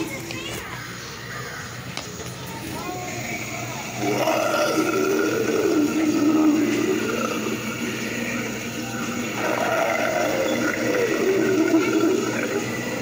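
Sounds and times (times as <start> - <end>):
recorded monster voice: 3.8 - 13.0.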